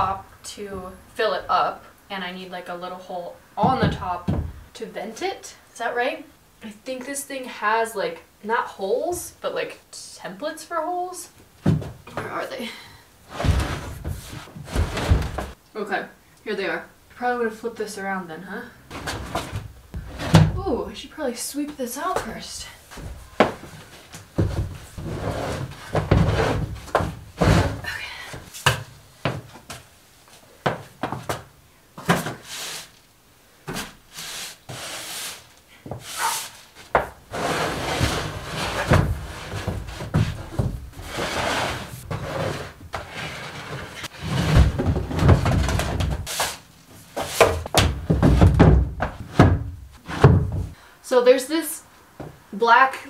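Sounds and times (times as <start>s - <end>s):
broom sweeping wooden floor: 13.3s - 15.6s, 32.2s - 33.0s, 33.7s - 45.3s, 46.2s - 47.8s
wood knocking and clattering: 47.2s - 50.8s.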